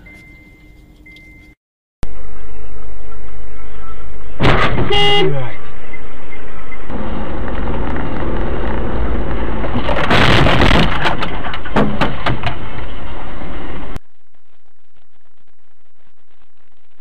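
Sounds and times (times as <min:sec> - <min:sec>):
car road and engine noise: 0:00.0 - 0:14.1
sudden rush of noise: 0:12.2 - 0:17.0.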